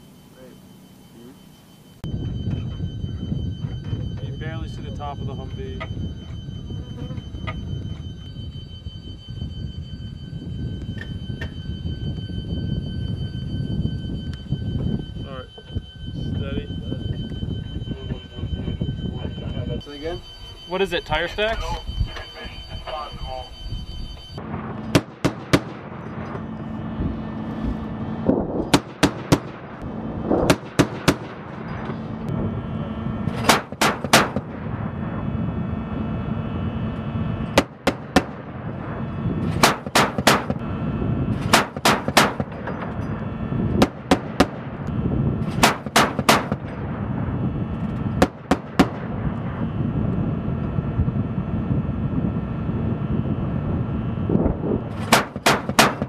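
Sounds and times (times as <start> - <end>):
vehicle engine running: 24.2 - 56.0.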